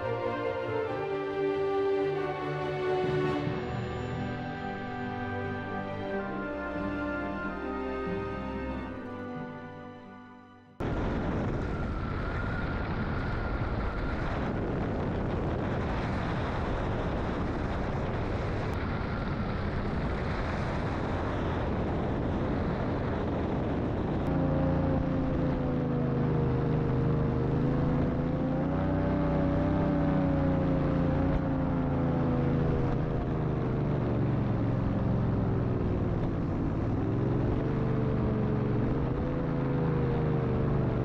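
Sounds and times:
engine droning: 0.0s - 41.0s
wind rush: 10.8s - 41.0s.

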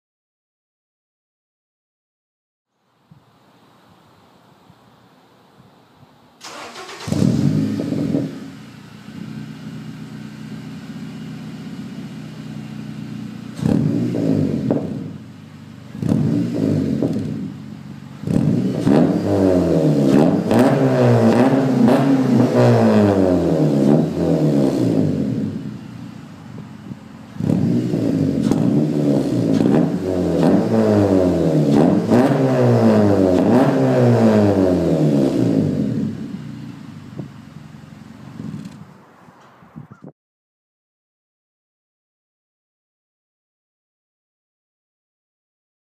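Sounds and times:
car engine revving: 6.4s - 38.8s.

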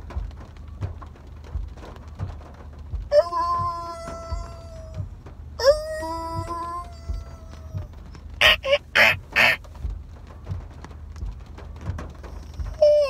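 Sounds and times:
man making raspy squawks: 8.4s - 9.6s.

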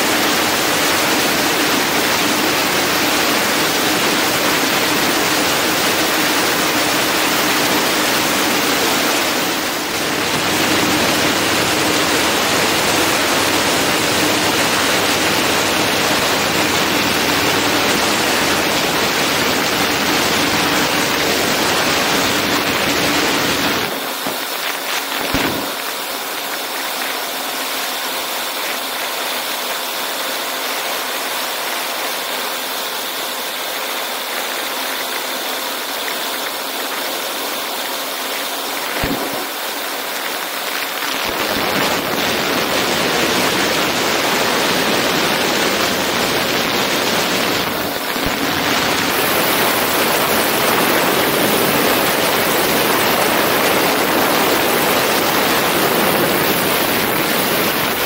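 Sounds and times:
aircraft engine and propeller drone: 0.0s - 58.0s.

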